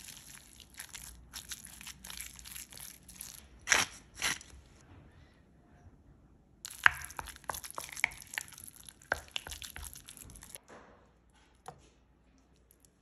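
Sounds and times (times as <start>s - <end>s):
spoon stirring thick sauce: 0.0s - 3.4s, 6.7s - 10.6s.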